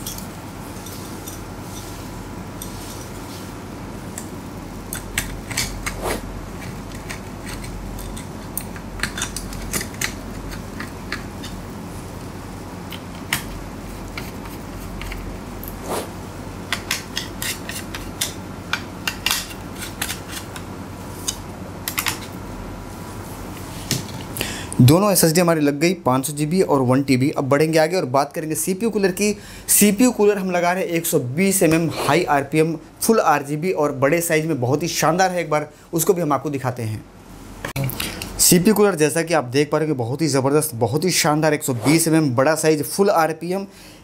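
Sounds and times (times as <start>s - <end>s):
steady background noise: 0.0s - 44.0s.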